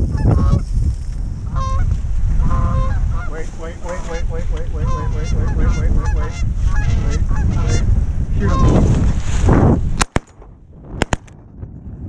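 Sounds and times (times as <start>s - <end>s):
goose honking and clucking: 1.5s - 8.8s
shotgun shots: 10.0s - 10.4s, 11.0s - 11.4s.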